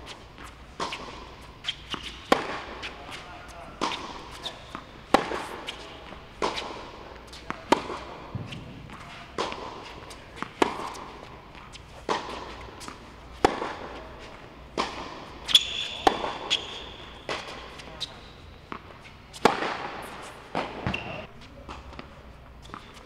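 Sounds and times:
tennis ball bouncing: 0.0 - 21.1
racket hitting tennis ball: 0.0 - 23.0
shoe squeak: 1.6 - 3.6, 15.4 - 19.4, 20.7 - 21.3.

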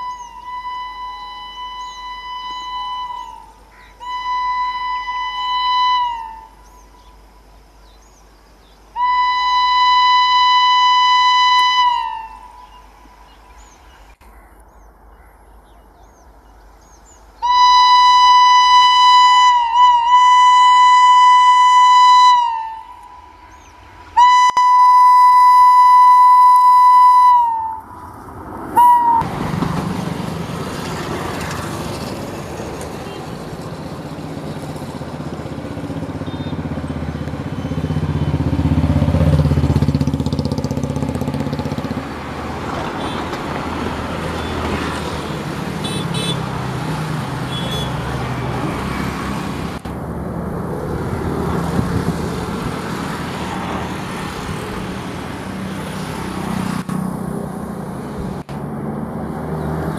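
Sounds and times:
shrill locomotive horn: 0.0 - 7.1, 9.0 - 13.0, 17.4 - 29.4, 36.0 - 39.5, 42.6 - 49.8
train rumbling past: 0.0 - 59.9
short horn toot: 24.2 - 27.8, 47.5 - 48.1.

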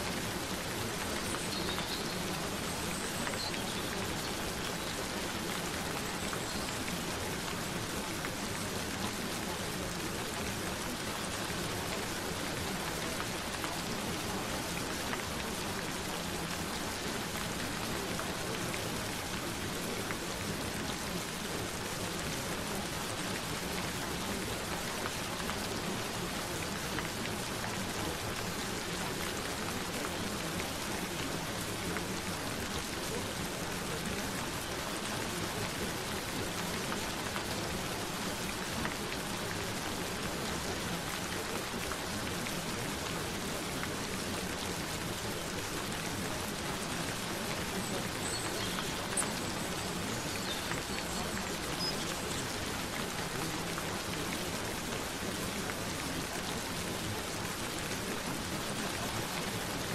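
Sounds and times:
gentle rain pattering: 0.0 - 59.9.

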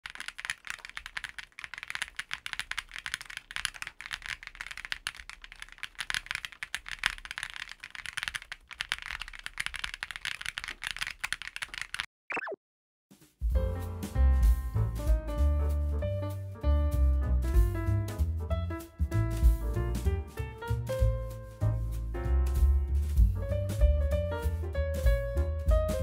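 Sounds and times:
fast mechanical keyboard typing: 0.0 - 12.1.

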